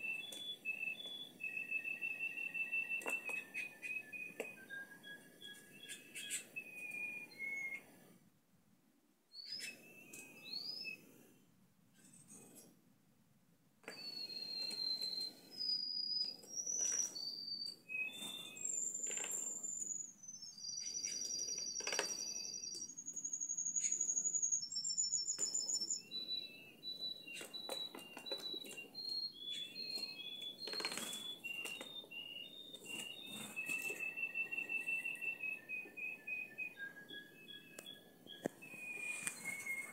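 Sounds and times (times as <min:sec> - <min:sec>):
canary singing trills: 0:00.0 - 0:07.8, 0:09.4 - 0:11.1, 0:13.8 - 0:39.9
wings fluttering: 0:30.6 - 0:32.0, 0:32.8 - 0:35.0.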